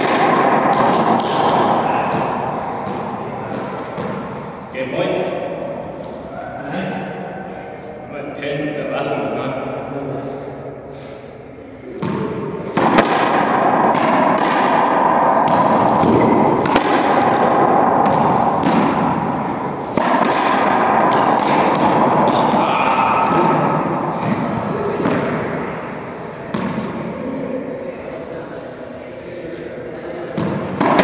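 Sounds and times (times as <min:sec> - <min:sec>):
racquetball hits echoing: 0:00.0 - 0:07.3, 0:11.9 - 0:27.6, 0:30.2 - 0:31.0.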